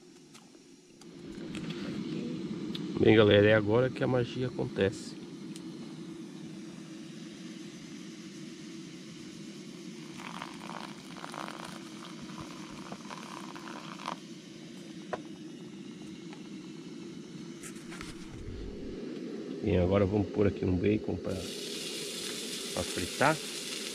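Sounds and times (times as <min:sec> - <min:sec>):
camping stove burner roaring: 0:00.0 - 0:23.9
hot water pouring and trickling: 0:10.0 - 0:14.2, 0:21.3 - 0:23.9.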